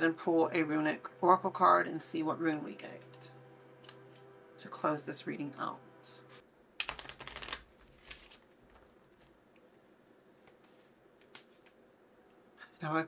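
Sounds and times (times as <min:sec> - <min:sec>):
cards being shuffled: 0:06.8 - 0:09.8, 0:10.4 - 0:11.8.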